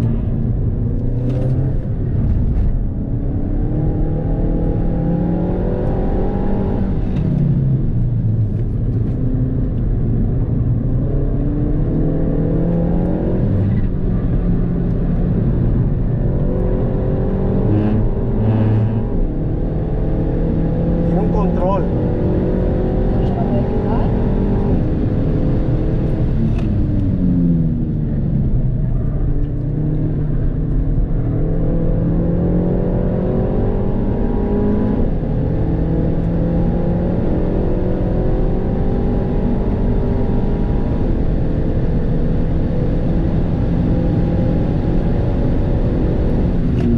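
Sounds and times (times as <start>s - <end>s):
car engine revving: 0.0s - 46.9s
tyre and road rumble: 12.0s - 32.6s, 43.7s - 46.9s.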